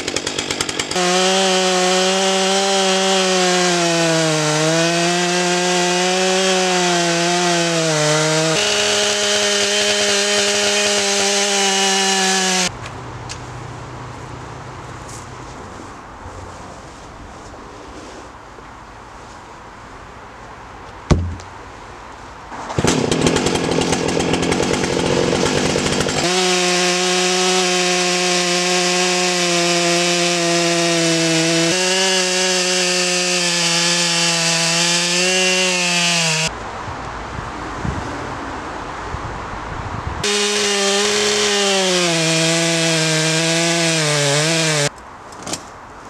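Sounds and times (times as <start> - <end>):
chainsaw cutting log: 0.0 - 12.7, 22.6 - 36.5, 40.2 - 44.9.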